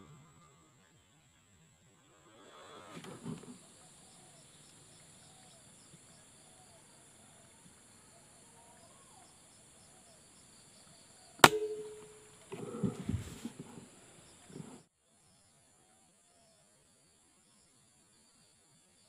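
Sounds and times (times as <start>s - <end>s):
air rifle shot: 11.4s - 12.2s.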